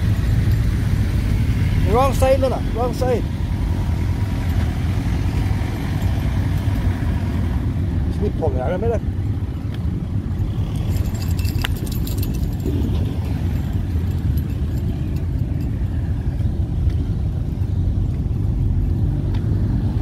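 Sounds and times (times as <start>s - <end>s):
traffic rumble from inside car: 0.0s - 20.0s
light rattling clicks: 10.8s - 15.6s.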